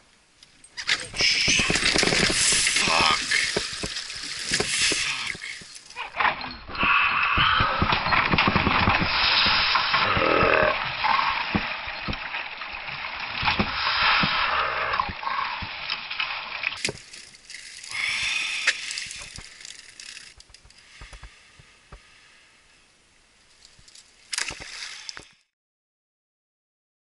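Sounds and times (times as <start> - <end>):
water splashing against canoe: 0.9 - 5.9, 7.6 - 19.6.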